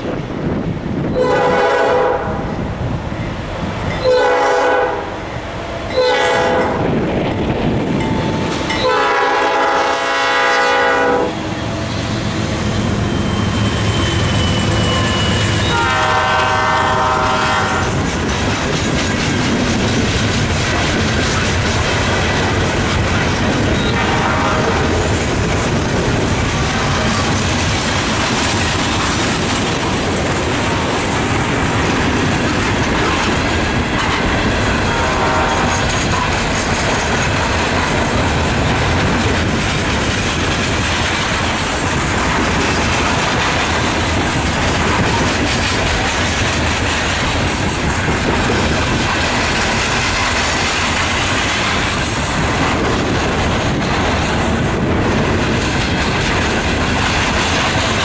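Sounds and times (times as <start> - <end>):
train wheels clattering over rail joints: 6.6 - 58.0
wheel squeal: 11.9 - 15.8.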